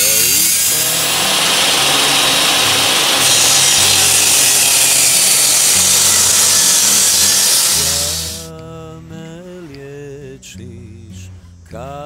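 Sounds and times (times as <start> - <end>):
table saw ripping wood: 0.0 - 8.5.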